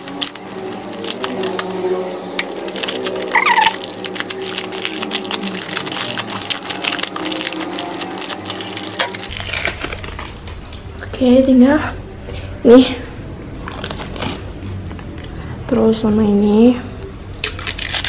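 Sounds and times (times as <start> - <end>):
plastic wrap crinkling: 0.0 - 10.8, 13.6 - 15.2, 17.2 - 18.0.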